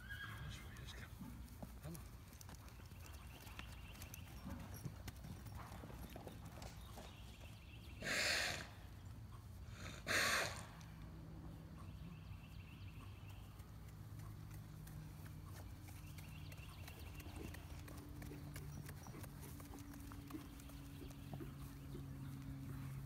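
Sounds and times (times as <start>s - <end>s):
horse hooves clip-clopping: 0.0s - 7.9s, 10.8s - 23.0s
horse breathy snorts: 8.0s - 8.8s, 9.6s - 10.8s.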